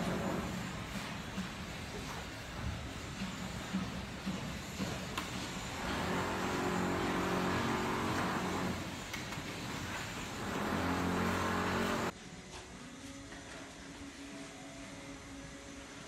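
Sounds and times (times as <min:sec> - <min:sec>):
engine running with low hum: 0:00.0 - 0:12.1.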